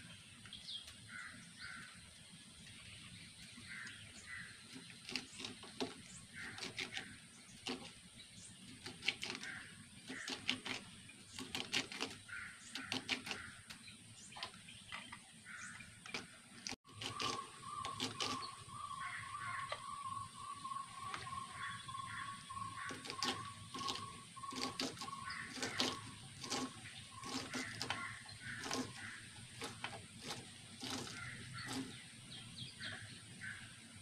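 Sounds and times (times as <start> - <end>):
birds calling: 0.0 - 34.0
knife cutting bean pods: 4.3 - 13.8, 16.0 - 18.6, 22.1 - 32.0.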